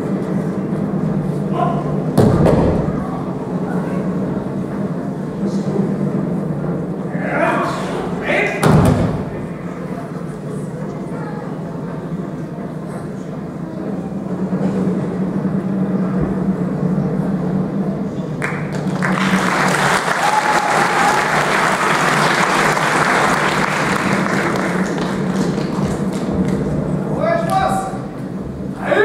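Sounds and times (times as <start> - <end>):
low steady hum: 0.0 - 29.0
audience applauding: 18.4 - 26.8.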